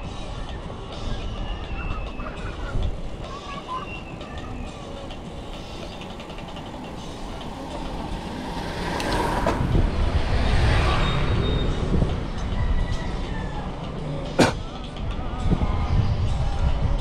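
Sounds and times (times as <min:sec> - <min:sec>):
vehicle rumbling past on road: 0:04.9 - 0:14.8.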